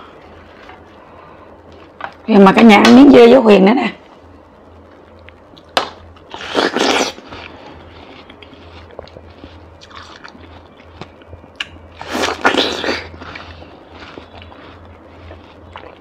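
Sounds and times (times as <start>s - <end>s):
wet chewing of watermelon: 6.3s - 16.0s.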